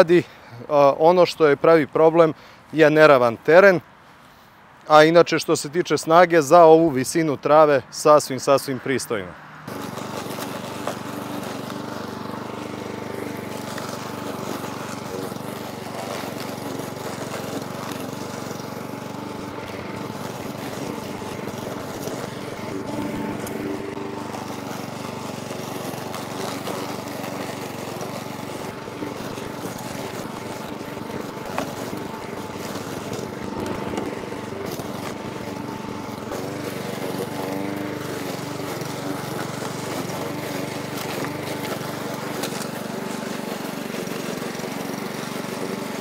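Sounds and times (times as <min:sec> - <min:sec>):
lawn mower engine running: 0:09.4 - 0:46.0.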